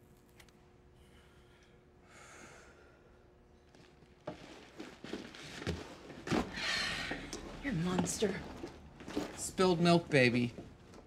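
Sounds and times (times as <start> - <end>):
rustling and knocks of movement: 3.7 - 9.7.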